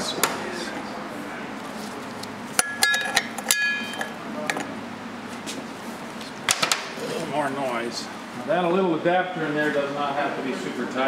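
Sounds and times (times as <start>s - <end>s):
metal parts clinking on steel: 2.6s - 4.1s.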